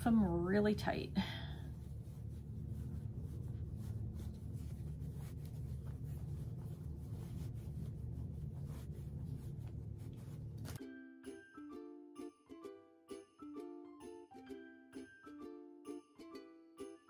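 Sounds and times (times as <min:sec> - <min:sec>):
fabric and stuffing rustling: 0:00.0 - 0:10.8
steady low hum: 0:00.0 - 0:10.8.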